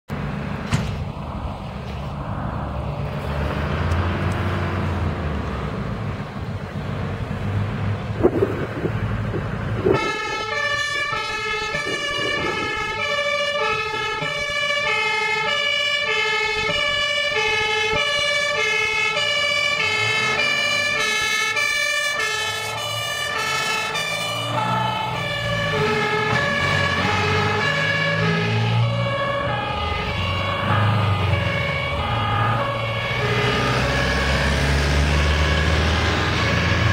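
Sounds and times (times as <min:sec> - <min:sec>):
diesel engine running: 0:00.1 - 0:36.9
two-tone siren: 0:08.2 - 0:36.9.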